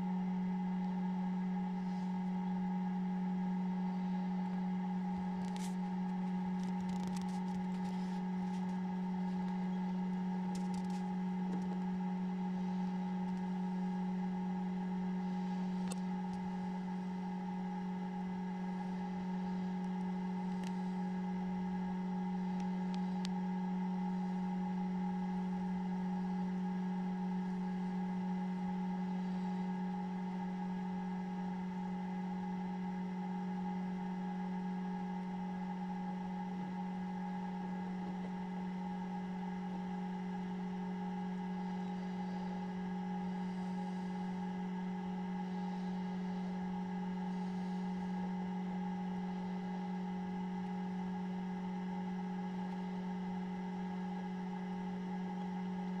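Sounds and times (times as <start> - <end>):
incubator fan humming: 0.0 - 56.0
faint clicks: 20.6 - 20.8.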